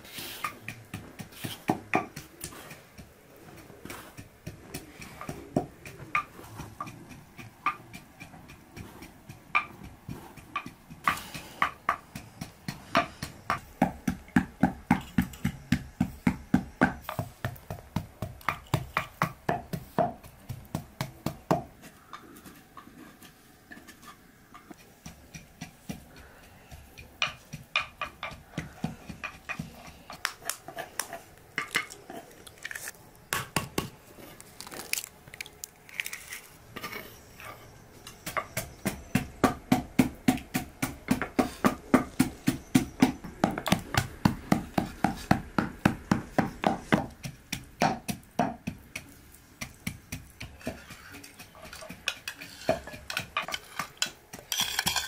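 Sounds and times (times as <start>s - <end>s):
pestle pounding in wooden mortar: 0.4s - 21.9s, 24.7s - 31.9s, 33.3s - 34.0s, 38.0s - 55.0s
spoons and bowls clicking: 50.6s - 55.0s.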